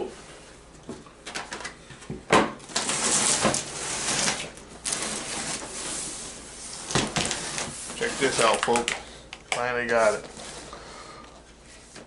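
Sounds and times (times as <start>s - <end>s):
cardboard rustling and scraping: 2.7s - 8.9s, 9.9s - 10.8s.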